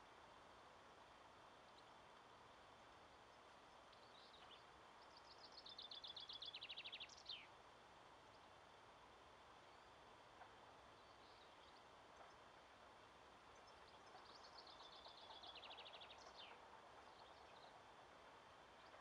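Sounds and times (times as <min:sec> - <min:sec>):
faint steady hiss: 0:00.0 - 0:19.0
songbird trill: 0:03.1 - 0:07.6, 0:10.9 - 0:12.5, 0:13.4 - 0:17.9.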